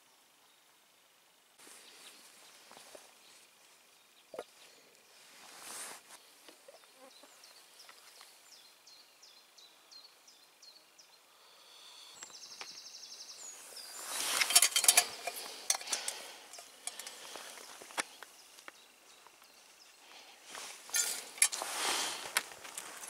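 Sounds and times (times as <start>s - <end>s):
songbird chirping and trilling: 0.0s - 21.4s
close rustling: 5.1s - 8.4s, 13.4s - 23.0s.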